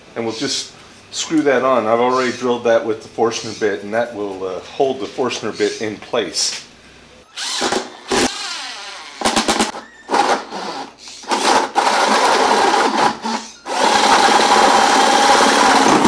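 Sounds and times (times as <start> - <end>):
cordless drill boring wood: 7.3 - 16.0.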